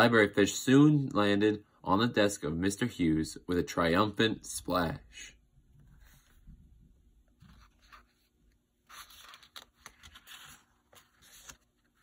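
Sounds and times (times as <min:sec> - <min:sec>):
book page turning: 0:07.3 - 0:12.0.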